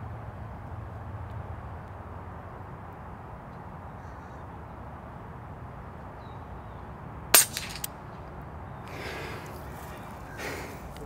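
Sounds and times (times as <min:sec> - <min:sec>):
low background rush: 0:00.0 - 0:11.0
air rifle shot: 0:07.4 - 0:08.0.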